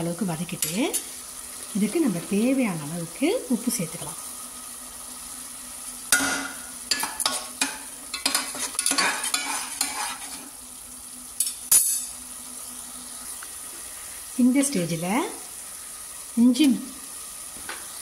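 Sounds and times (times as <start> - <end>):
paste sizzling in a pan: 0.0 - 18.0
utensil scraping pan bottom: 7.0 - 10.5.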